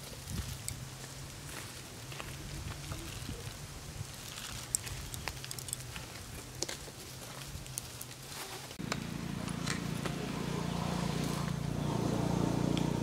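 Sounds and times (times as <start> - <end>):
wood fire crackling and popping: 0.0 - 9.0
low drone: 8.8 - 13.0.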